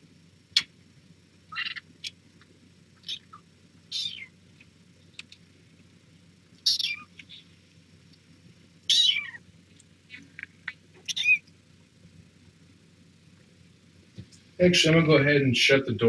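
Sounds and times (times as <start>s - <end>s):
kittens mewing: 3.0s - 4.4s, 6.6s - 7.5s, 8.9s - 9.4s, 10.1s - 11.5s.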